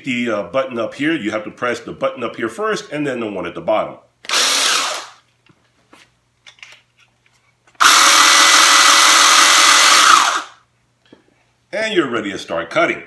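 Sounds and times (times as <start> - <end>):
electric chainsaw motor whining: 4.3 - 5.2, 7.8 - 10.6.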